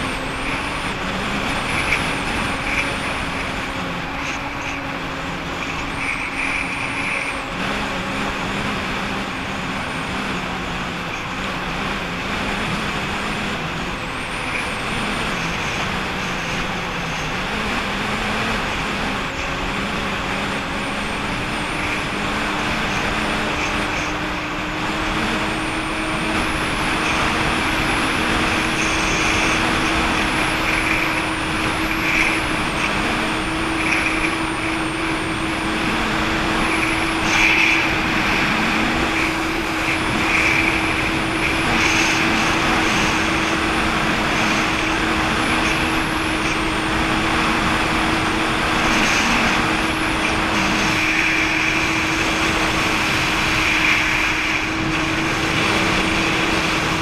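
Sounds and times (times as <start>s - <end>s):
jet ski engine running: 0.0s - 57.0s
water rushing: 25.6s - 57.0s.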